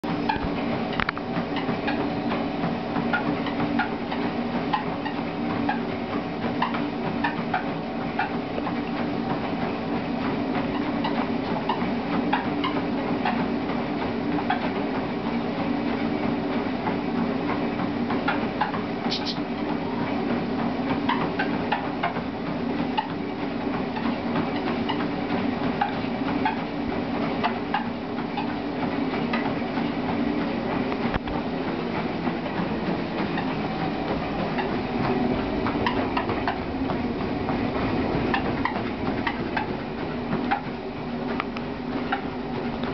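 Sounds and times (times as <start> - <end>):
treadmill motor and belt hum: 0.0 - 42.9.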